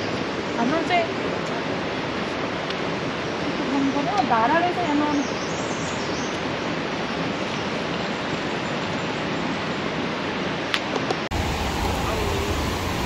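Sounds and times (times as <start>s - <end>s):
stream water rushing over rocks: 6.3s - 13.0s.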